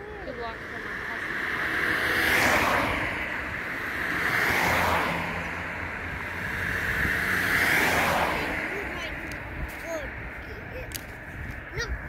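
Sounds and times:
distant helicopter: 0.0s - 12.0s.

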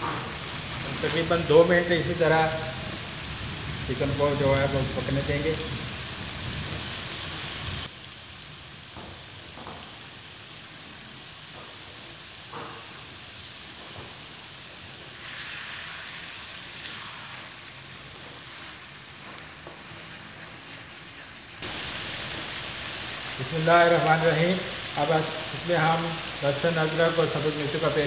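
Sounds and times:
food sizzling in hot oil: 0.0s - 28.0s.

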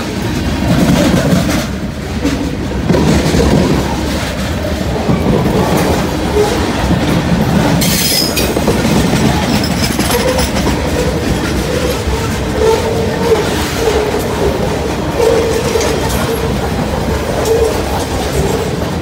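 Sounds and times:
train wheels rumbling on rail: 0.0s - 19.0s
wheel squeal against rail: 7.8s - 8.6s, 9.2s - 14.4s, 15.1s - 16.7s, 17.3s - 18.8s.

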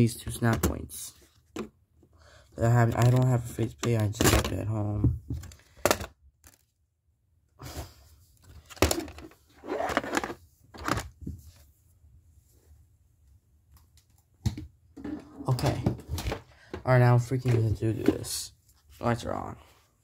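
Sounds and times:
plastic parts clicking and knocking: 2.8s - 6.7s.

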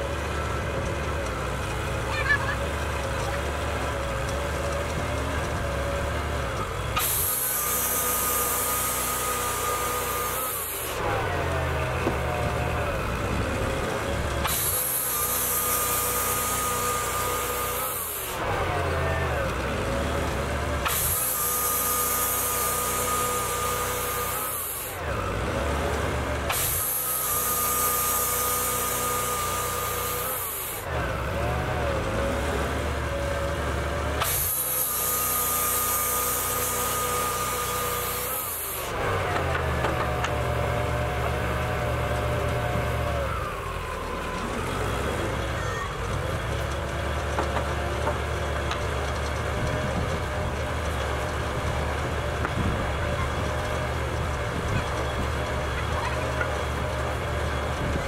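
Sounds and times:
sawmill engine running: 0.0s - 58.0s
band saw blade cutting log: 1.3s - 45.5s.

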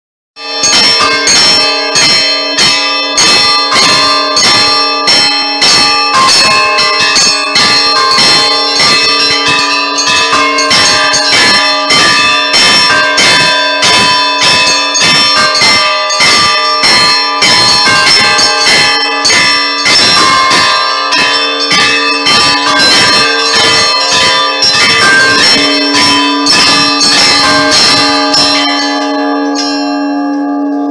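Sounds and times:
large bells ringing: 0.4s - 30.9s
small church bells pealing: 0.4s - 30.9s.

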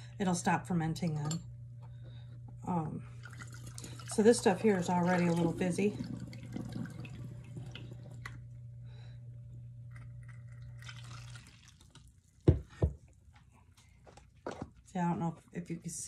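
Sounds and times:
liquid trickling into bottle: 3.2s - 4.2s, 10.2s - 12.2s.

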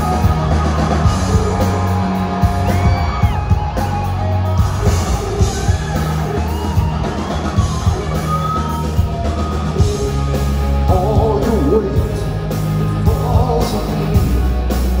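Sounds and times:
live rock band playing: 0.0s - 15.0s
man singing lead vocals: 9.8s - 15.0s.

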